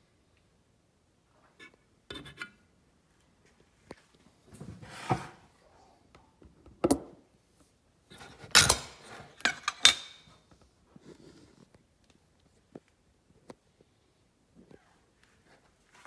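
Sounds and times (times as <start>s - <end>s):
dishes and utensils clattering: 8.2s - 10.4s.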